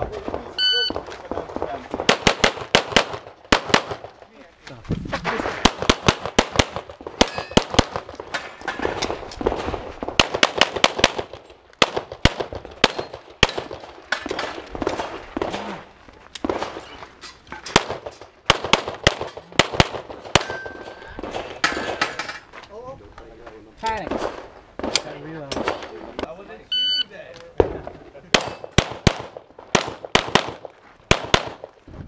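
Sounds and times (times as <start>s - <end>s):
pistol shots: 0.3s - 4.2s, 5.6s - 15.7s, 17.7s - 22.1s, 27.6s - 31.7s.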